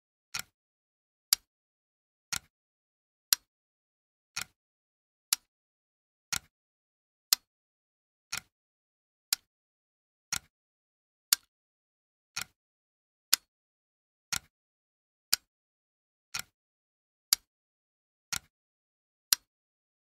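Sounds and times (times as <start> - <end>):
clock ticking: 2.3 - 2.5, 10.3 - 10.5, 14.3 - 14.5.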